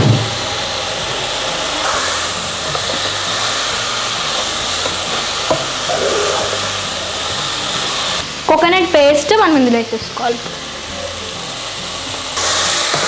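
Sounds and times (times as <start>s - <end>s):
curry sizzling in a pot: 0.2s - 13.0s
spatula knocking: 4.3s - 6.7s.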